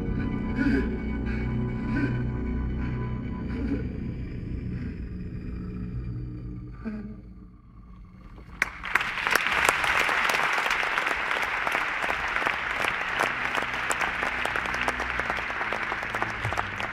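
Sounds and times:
audience applauding: 8.3s - 16.9s.

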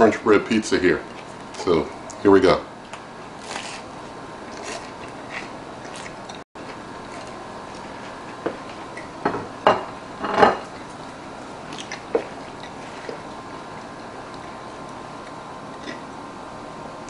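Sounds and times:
chewing crunchy bread: 2.8s - 9.0s, 10.7s - 16.2s.

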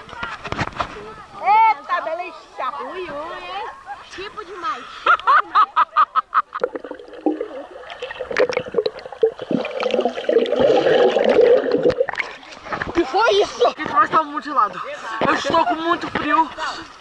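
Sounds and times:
muffled underwater rush and bubbling: 6.5s - 13.0s.

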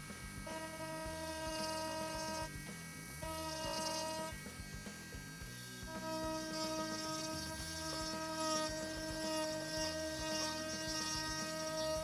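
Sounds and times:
rotary tool whining: 0.0s - 12.0s.

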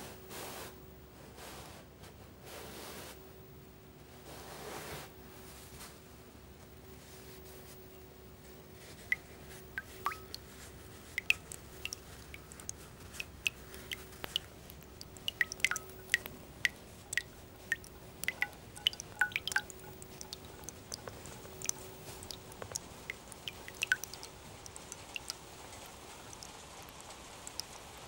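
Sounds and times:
water dripping with plinks: 8.8s - 28.0s.

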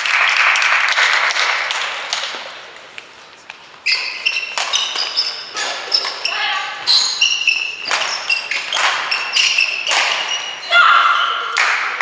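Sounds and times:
people clapping: 0.0s - 3.1s, 8.7s - 9.1s, 9.9s - 10.2s, 11.5s - 12.0s
racket striking shuttlecock: 3.0s - 6.3s, 7.3s - 10.6s
shoes squeaking on court floor: 3.0s - 11.6s.

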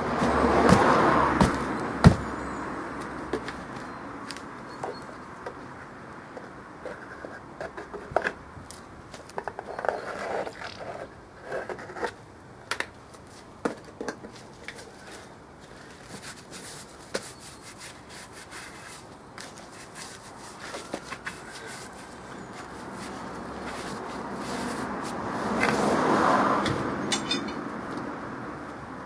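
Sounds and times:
gloved hands scraping tyre: 16.0s - 26.2s.

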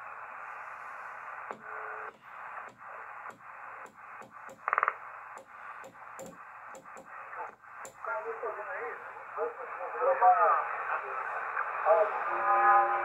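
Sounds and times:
radio receiver hiss: 0.0s - 13.0s.

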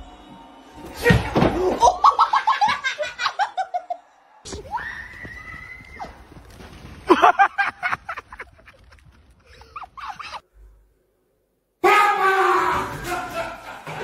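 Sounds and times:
person laughing: 7.1s - 10.4s.

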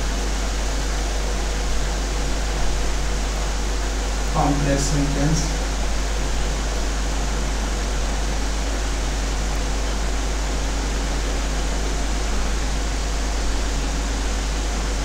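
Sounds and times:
strong low hum: 0.0s - 8.8s
even hiss: 2.6s - 10.5s.

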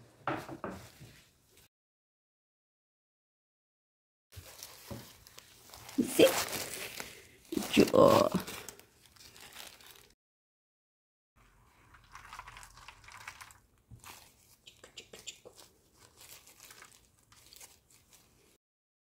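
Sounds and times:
plastic gloves and tissue crinkling: 4.3s - 10.2s, 11.4s - 18.6s.

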